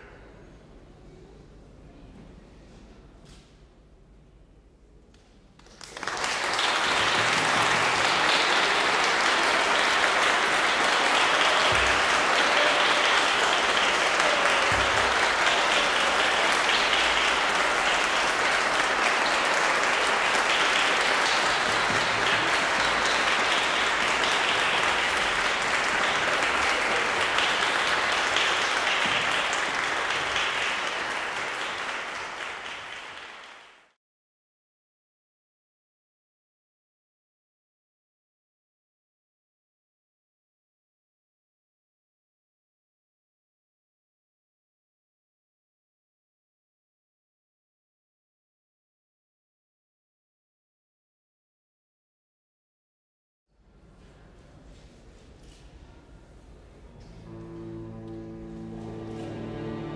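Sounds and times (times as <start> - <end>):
audience applauding: 5.6 - 34.0, 57.2 - 59.9.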